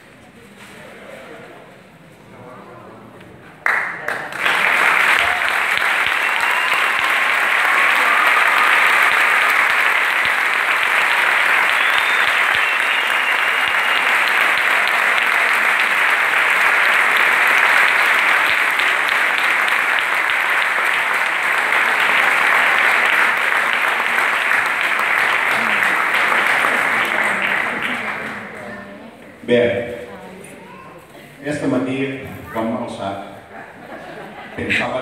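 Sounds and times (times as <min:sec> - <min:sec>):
audience applauding: 0:03.6 - 0:29.0.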